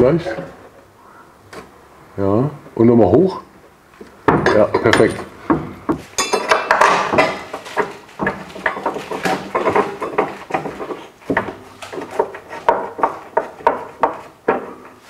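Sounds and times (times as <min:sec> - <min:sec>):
metallic clinks and scrapes: 0:06.2 - 0:08.9.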